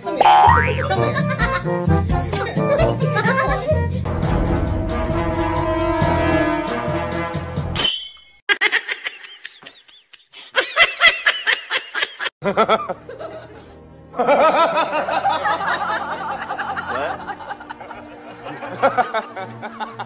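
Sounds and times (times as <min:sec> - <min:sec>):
background music: 0:00.0 - 0:07.8, 0:12.4 - 0:20.0
high-pitched laughter: 0:08.5 - 0:12.7.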